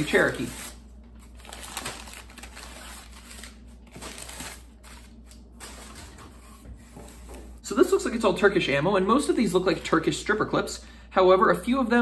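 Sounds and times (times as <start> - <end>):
paper rustling and crinkling: 0.0 - 7.4.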